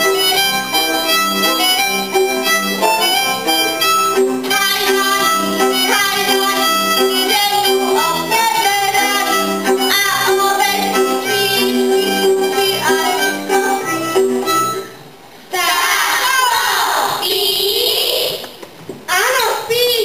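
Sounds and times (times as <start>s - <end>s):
fiddle melody: 0.0s - 15.1s.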